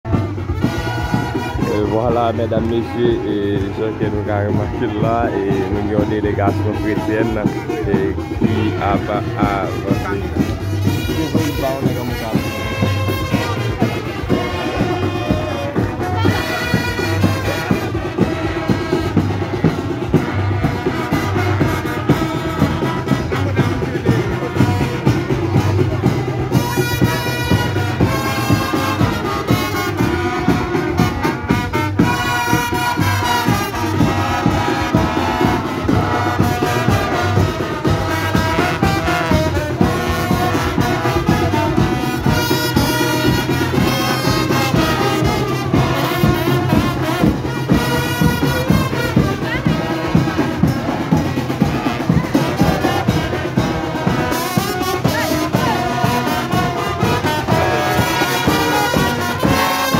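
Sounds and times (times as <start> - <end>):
marching brass band playing: 0.0 - 59.9.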